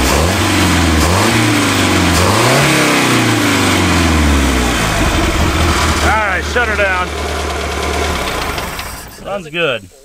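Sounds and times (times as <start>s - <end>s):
boat engine revving: 0.0s - 9.3s.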